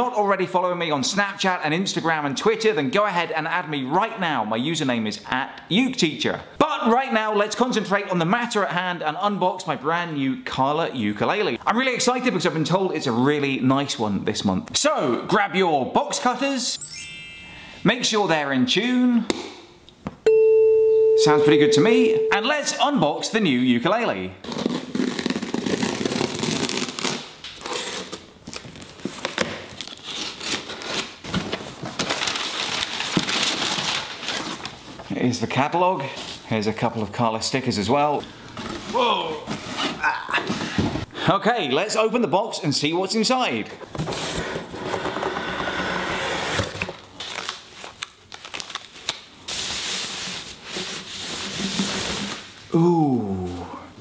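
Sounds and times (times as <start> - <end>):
packing paper crinkling: 24.5 - 35.0, 47.0 - 50.6.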